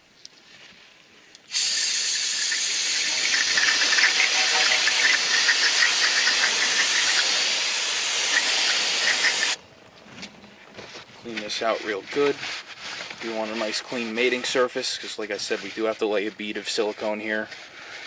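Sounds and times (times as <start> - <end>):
aerosol spray hissing: 1.5 - 9.6.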